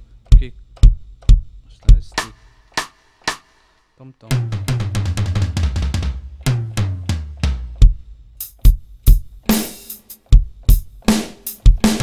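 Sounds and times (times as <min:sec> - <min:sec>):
kick and snare strikes: 0:00.3 - 0:03.7
sampled drum hits: 0:00.3 - 0:12.0.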